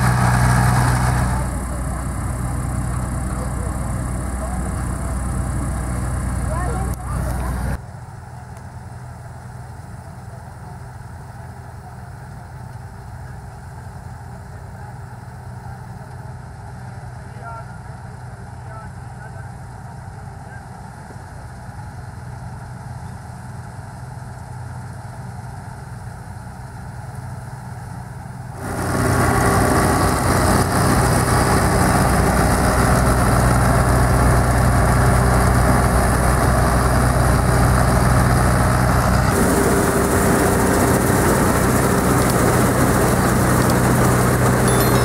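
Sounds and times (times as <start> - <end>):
combine harvester engine drone: 0.0 - 45.0
cutting and threshing machinery: 39.0 - 45.0.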